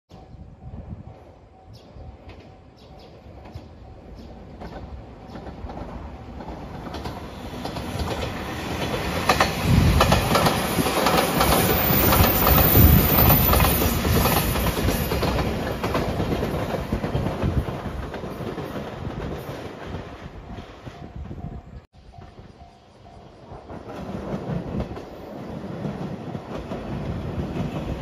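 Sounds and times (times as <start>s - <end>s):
electric train passing: 0.1s - 28.0s
wheels clicking over rail joints: 2.3s - 21.1s.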